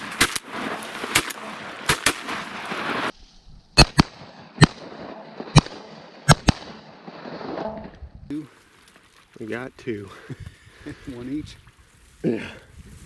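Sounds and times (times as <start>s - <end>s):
shotgun shots: 0.0s - 3.1s, 3.8s - 7.5s.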